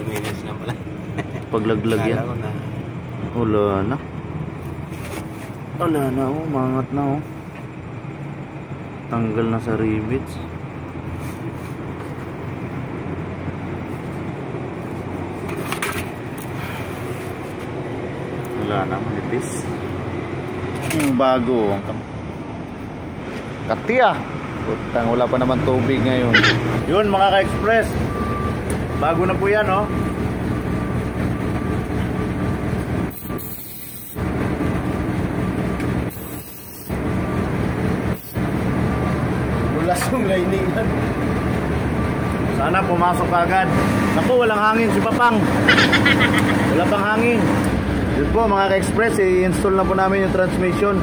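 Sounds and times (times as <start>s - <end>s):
low motor rumble: 24.6s - 33.1s, 34.2s - 36.1s
low mechanical hum: 26.4s - 48.4s
aerosol spray can hissing: 33.1s - 34.2s, 36.1s - 36.9s.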